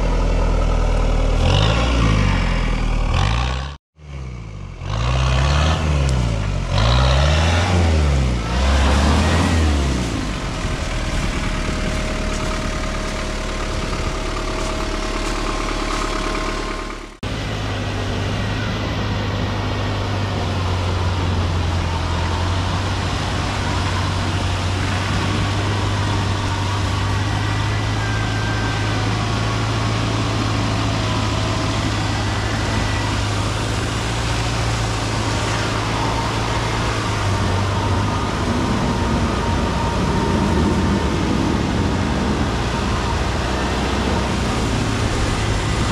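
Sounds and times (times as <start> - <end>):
engine revving in surges: 0.0 - 45.9
low engine drone: 0.0 - 45.9.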